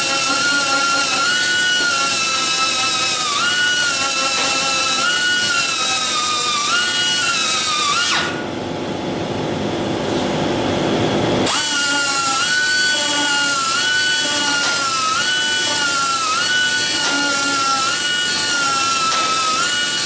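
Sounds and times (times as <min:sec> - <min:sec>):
die grinder whining on sheet metal: 0:00.0 - 0:08.5, 0:11.4 - 0:20.0.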